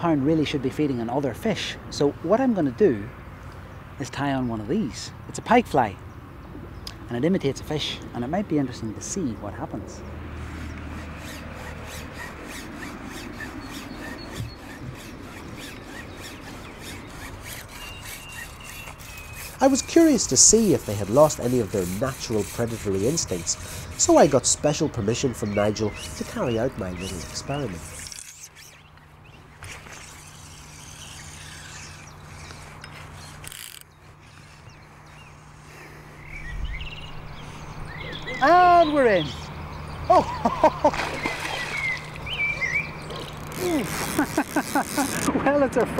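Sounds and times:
low hum: 0:09.7 - 0:44.2
fly line rasping through rod guides: 0:10.3 - 0:35.8, 0:43.1 - 0:45.3.

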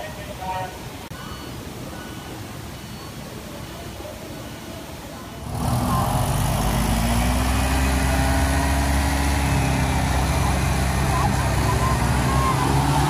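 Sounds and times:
quiet street noise: 0:00.0 - 0:13.0
motorbike engine idling: 0:05.4 - 0:13.0.

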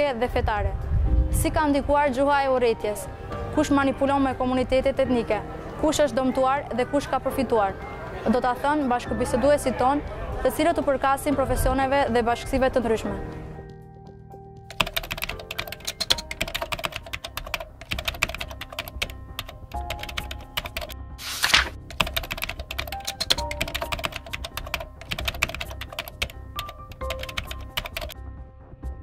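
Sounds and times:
soft background music: 0:00.0 - 0:29.0
keyboard typing clicks: 0:14.7 - 0:28.2.

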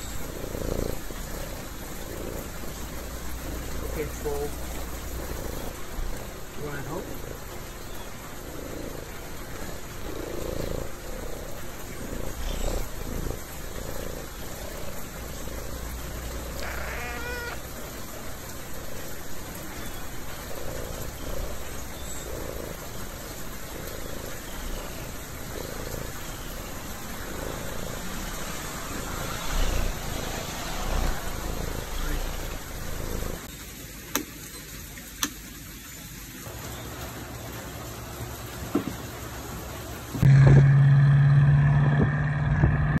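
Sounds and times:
steady background hiss: 0:00.0 - 0:40.2
cat rising call: 0:16.5 - 0:17.9.

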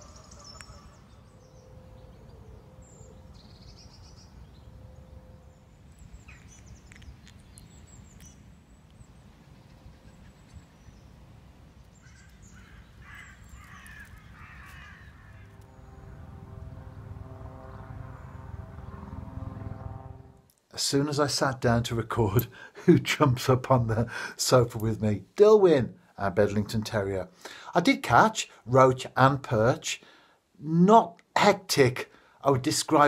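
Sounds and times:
birds calling: 0:00.0 - 0:04.7, 0:11.8 - 0:16.3
harsh caw-like calls: 0:12.0 - 0:15.7
low rumble: 0:14.9 - 0:20.5
multi-tone drone: 0:15.1 - 0:20.5.

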